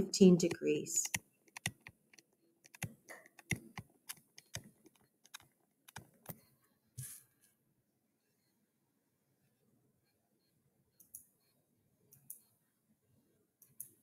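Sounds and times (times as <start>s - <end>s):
stylus clicking on tablet screen: 0.4s - 7.2s, 11.0s - 12.6s, 13.6s - 14.0s.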